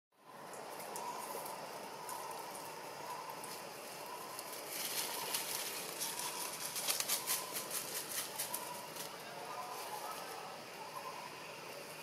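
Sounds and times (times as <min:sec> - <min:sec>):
dry leaves crackling and rustling: 0:03.3 - 0:10.4.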